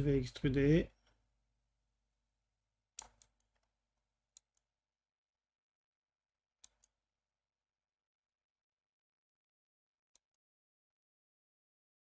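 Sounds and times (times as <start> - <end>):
computer mouse clicking: 3.0 - 3.7, 4.3 - 4.7, 6.6 - 7.0.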